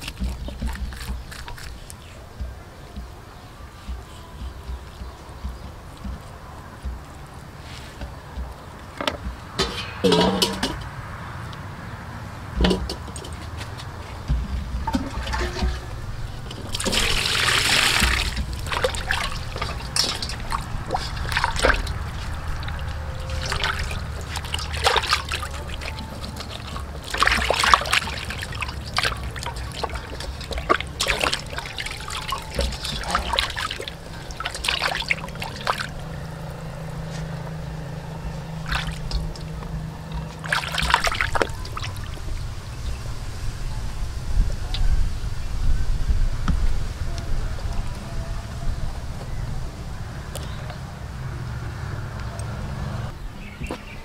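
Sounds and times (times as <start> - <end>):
water splashing in a metal bowl: 0.0 - 10.9, 12.5 - 37.0, 38.2 - 43.0.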